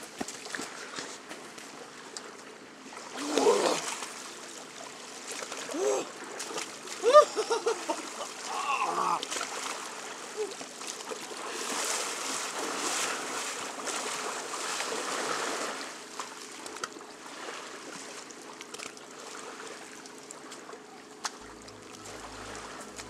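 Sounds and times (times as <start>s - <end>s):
person wading through shallow water: 0.0s - 23.0s
steady flow of water: 0.0s - 23.0s.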